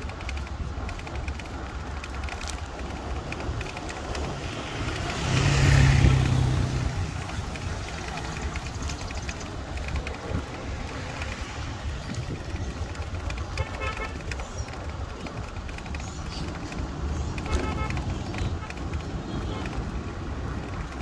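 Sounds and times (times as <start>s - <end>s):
traffic rumble: 0.0s - 21.0s
vehicle passing close: 2.4s - 12.9s.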